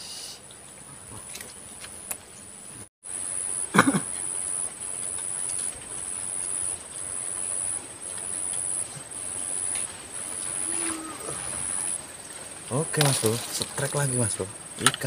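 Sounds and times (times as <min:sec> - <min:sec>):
insect trilling: 0:03.1 - 0:15.0.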